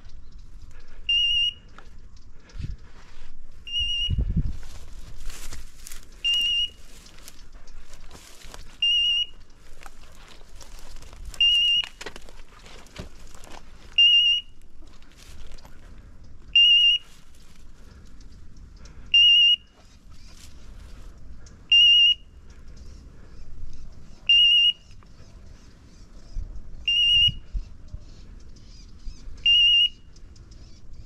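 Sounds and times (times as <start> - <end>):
rustling and crackling: 1.6 - 19.0, 19.7 - 21.6.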